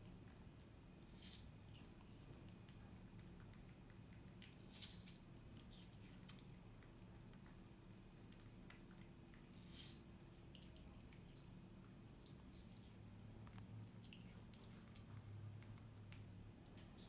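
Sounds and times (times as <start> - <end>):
loud chewing smacks: 1.9 - 4.6
monkey chewing wetly: 2.0 - 4.7, 5.4 - 16.7.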